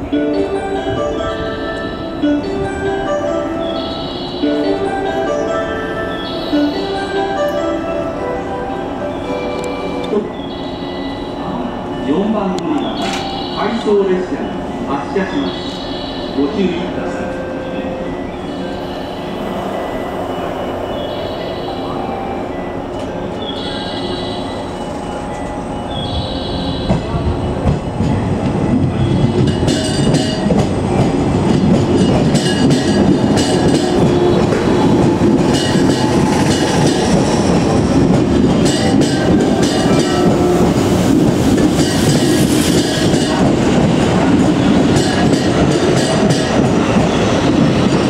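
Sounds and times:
electric train running: 18.5 - 48.0
wheels clacking over rail joints: 26.8 - 48.0.

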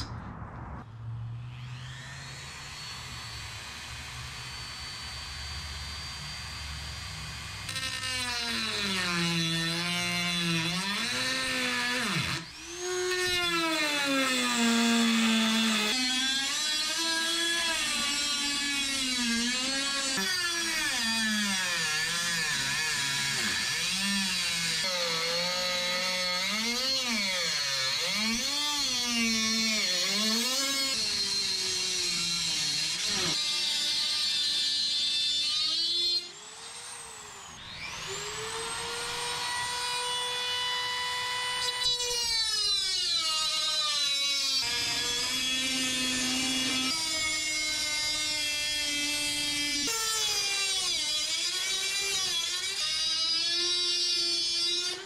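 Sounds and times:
rotary tool cutting metal: 1.5 - 55.0.

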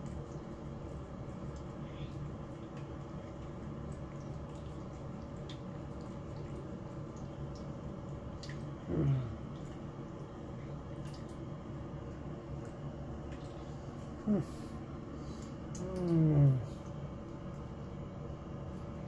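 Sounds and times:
cat licking and chewing: 0.0 - 8.8
steady low hum: 0.0 - 19.0.

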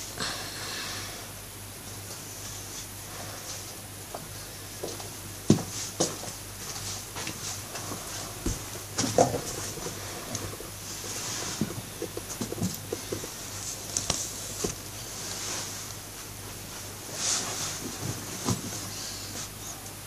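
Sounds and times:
soft breaths: 17.1 - 19.9.

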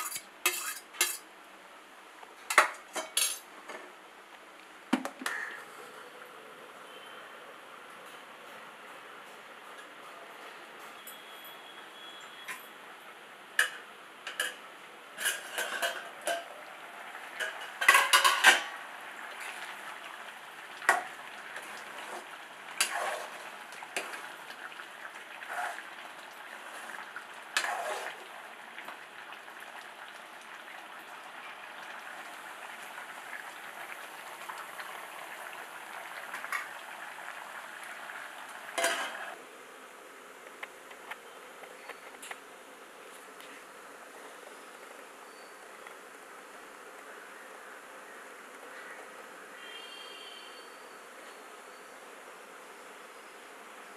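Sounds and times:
lid and ladle clattering on pot: 0.0 - 1.2, 2.5 - 3.8, 13.6 - 14.6, 15.2 - 16.6, 17.3 - 18.8, 38.8 - 39.3
gravy cooking hiss: 0.0 - 4.0, 5.2 - 7.7, 12.3 - 53.9.

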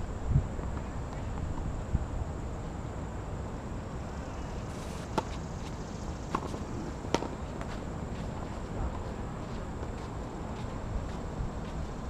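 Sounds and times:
outdoor background hiss: 0.0 - 12.0
tennis balls struck by rackets: 4.8 - 9.0.

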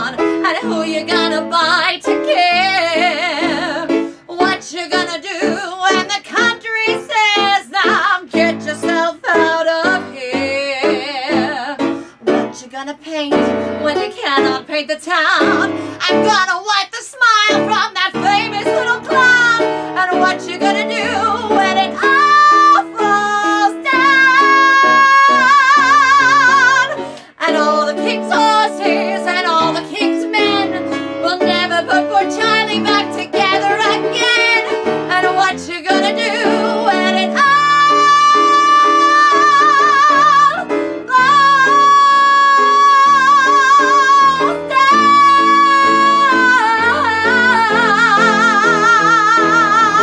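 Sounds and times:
woman singing high notes: 17.5 - 49.9.

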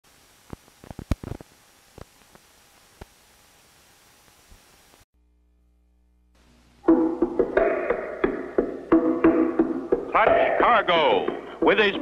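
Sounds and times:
static hiss: 0.0 - 12.0
sharp clicks and crackles: 0.4 - 3.2.

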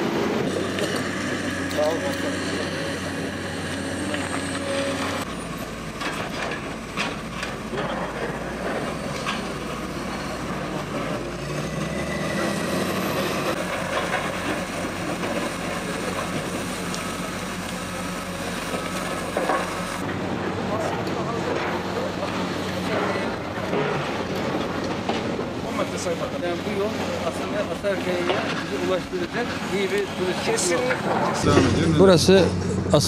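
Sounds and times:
voices talking: 0.0 - 5.3, 14.9 - 33.0
diesel engines droning: 0.0 - 33.0.

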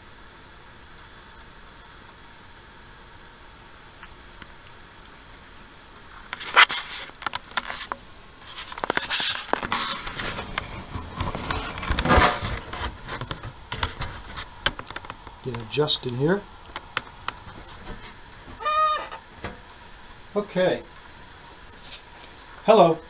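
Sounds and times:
microphone hiss: 0.0 - 23.0.

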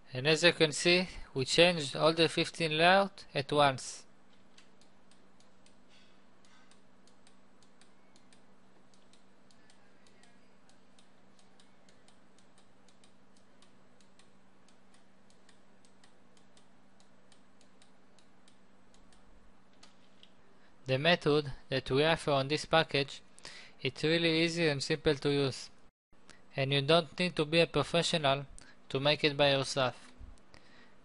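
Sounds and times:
low steady hum: 0.0 - 31.0
computer mouse clicking: 4.3 - 5.8, 6.4 - 20.4.

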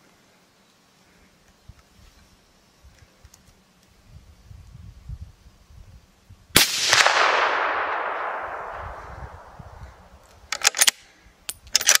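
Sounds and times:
rifle shot echoing: 6.6 - 10.9
sharp clicks: 10.2 - 12.0.

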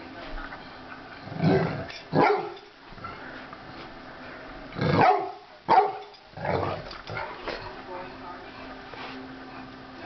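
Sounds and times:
dogs barking: 1.5 - 2.6, 4.8 - 6.2.

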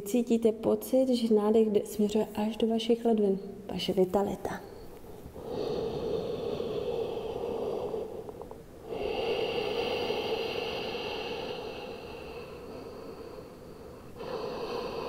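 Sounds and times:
woman breathing deeply: 4.8 - 15.0.

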